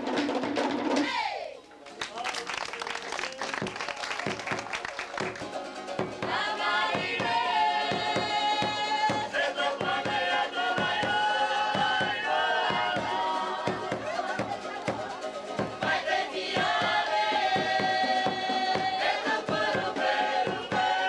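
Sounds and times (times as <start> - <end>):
drums beating fast rhythm: 0.0 - 1.1, 3.5 - 21.0
group of voices singing: 5.8 - 21.0.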